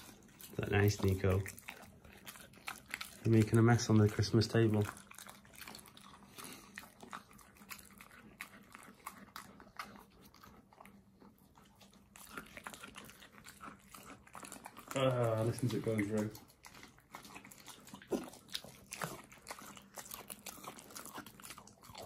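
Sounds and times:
dog chewing raw meat: 0.0 - 22.0.

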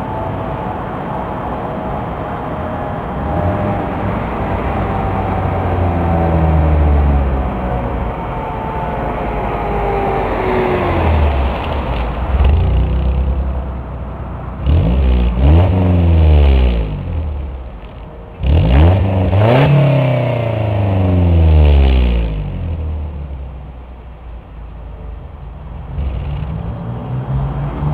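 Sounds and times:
car engine revving: 3.0 - 23.7.

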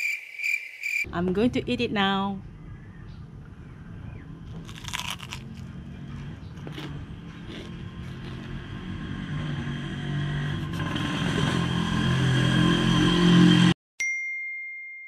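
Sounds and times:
motorbike engine revving: 4.2 - 13.8.

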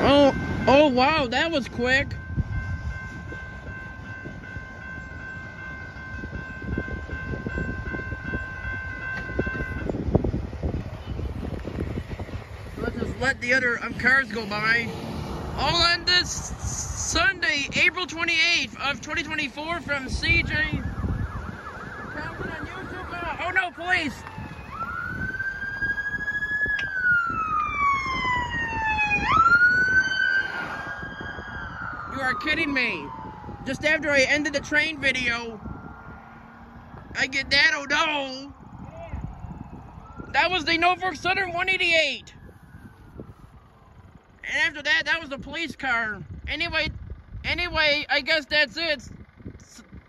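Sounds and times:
railroad crossing bell ringing: 0.0 - 10.3, 17.1 - 20.6
freight train rumble: 0.0 - 20.8
police siren wailing: 0.0 - 46.0.

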